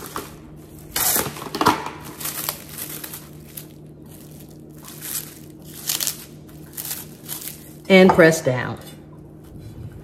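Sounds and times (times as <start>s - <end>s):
plastic cling wrap crinkling: 0.0s - 7.9s.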